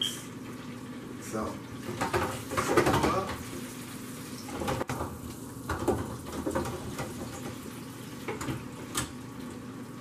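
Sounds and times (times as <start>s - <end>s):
oil bubbling and sizzling: 0.0s - 10.0s
fryer basket clicks and knocks: 1.9s - 3.4s, 4.5s - 7.6s.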